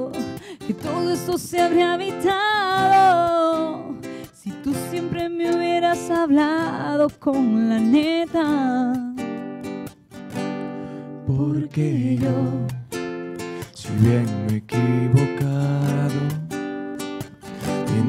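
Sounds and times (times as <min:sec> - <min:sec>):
person singing: 0:00.0 - 0:09.2, 0:11.2 - 0:13.0, 0:13.8 - 0:16.6, 0:17.7 - 0:18.0
acoustic guitar: 0:00.0 - 0:18.0.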